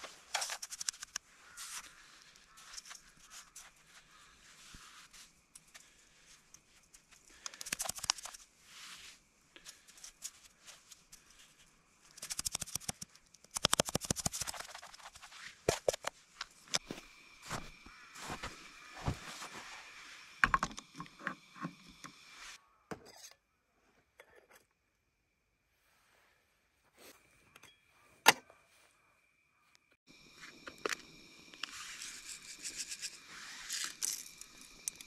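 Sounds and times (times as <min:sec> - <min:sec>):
snow crunching in metal pot: 0:16.8 - 0:20.2.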